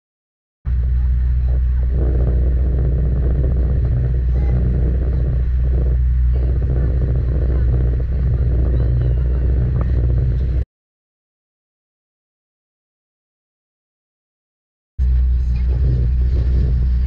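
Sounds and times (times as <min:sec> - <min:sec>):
boat engines droning: 0:00.7 - 0:10.6, 0:15.0 - 0:17.0.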